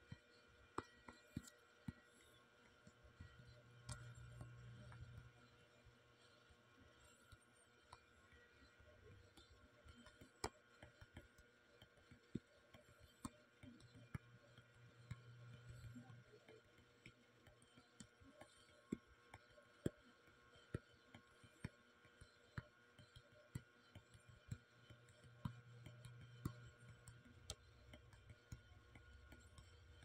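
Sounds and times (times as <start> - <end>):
fingertip taps on touchscreen: 0.7 - 5.3.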